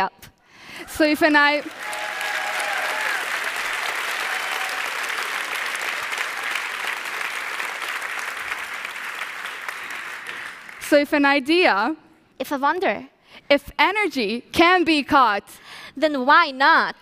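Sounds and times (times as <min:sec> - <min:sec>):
audience applauding: 0:01.2 - 0:10.8
faint voices cheering: 0:01.6 - 0:05.3.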